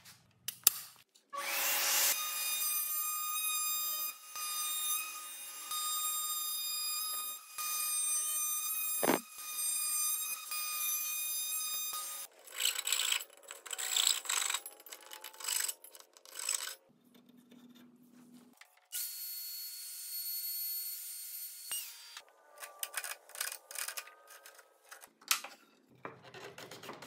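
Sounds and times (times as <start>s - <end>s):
router whining: 9.0s - 9.2s
thump: 9.0s - 9.2s.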